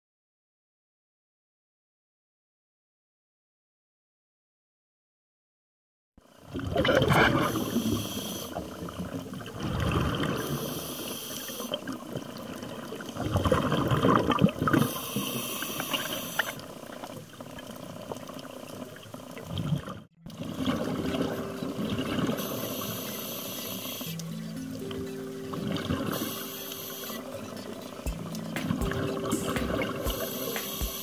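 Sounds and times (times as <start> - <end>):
bubbling exhalations underwater: 6.5 - 7.8, 13.2 - 15.0
scuba regulator hissing inhalations: 7.3 - 8.7, 10.3 - 11.8, 14.7 - 16.6, 22.4 - 24.2, 26.1 - 27.3, 30.1 - 31.0.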